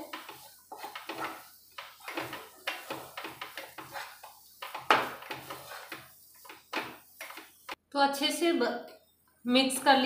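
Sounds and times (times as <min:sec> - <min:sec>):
spatula scraping thick mixture: 0:00.0 - 0:07.8.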